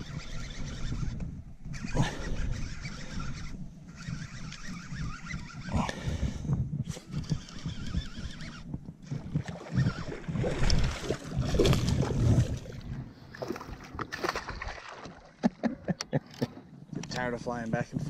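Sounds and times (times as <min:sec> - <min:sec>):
wind rumbling on microphone: 0:00.0 - 0:14.9, 0:15.8 - 0:18.0
fish splashing water: 0:09.4 - 0:15.4.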